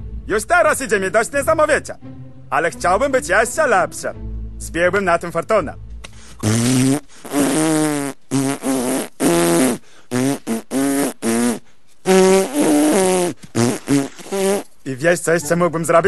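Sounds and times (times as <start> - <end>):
lip buzzing raspberries: 6.1 - 14.8.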